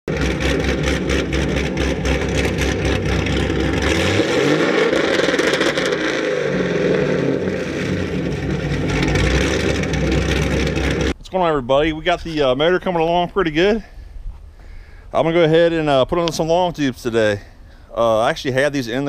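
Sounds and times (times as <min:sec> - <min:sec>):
car engine idling and revving: 0:00.0 - 0:11.2.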